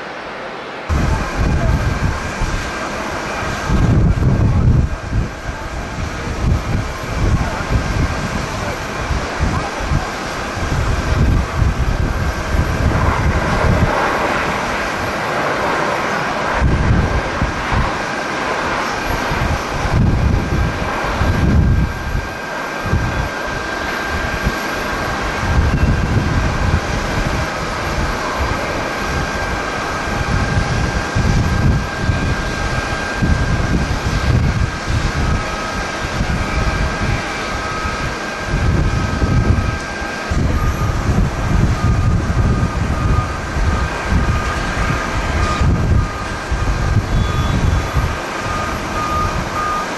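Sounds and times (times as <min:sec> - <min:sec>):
jet engines rumbling and whining: 0:00.0 - 0:49.9
wind buffeting microphone: 0:00.9 - 0:49.9.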